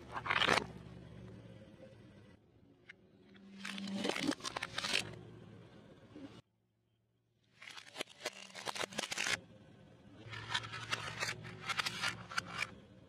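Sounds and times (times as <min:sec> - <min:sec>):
plastic toys crackling under tyre: 0:10.2 - 0:12.7.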